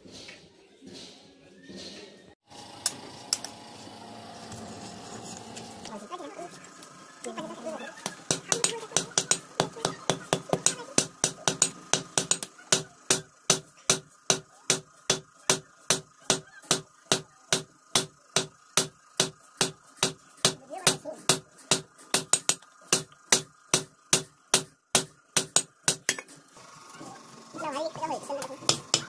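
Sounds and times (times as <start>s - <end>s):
hammer striking steel on anvil: 8.0s - 26.3s, 28.4s - 29.0s.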